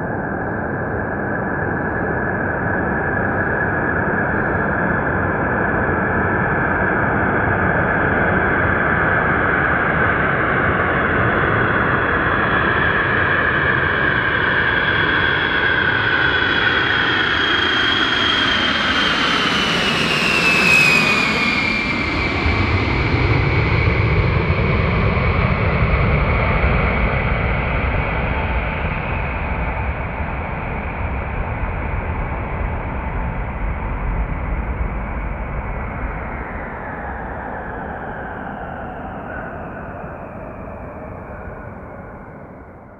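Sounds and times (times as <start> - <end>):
jet aircraft roar passing overhead: 0.0 - 42.9
high jet whine sliding down: 13.3 - 24.6, 32.4 - 42.9.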